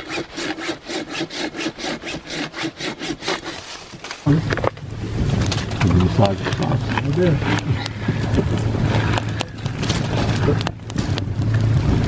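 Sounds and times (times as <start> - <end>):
hand saw cutting wood: 0.0 - 4.2.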